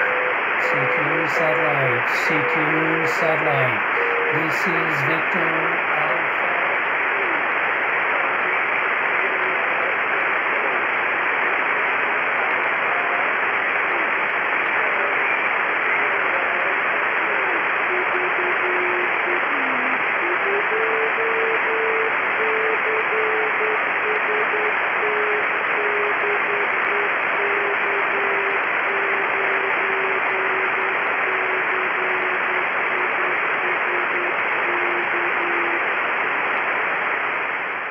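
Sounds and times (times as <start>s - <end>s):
morse code tone: 0.0s - 6.4s, 17.9s - 35.8s
radio receiver hiss: 0.0s - 37.9s.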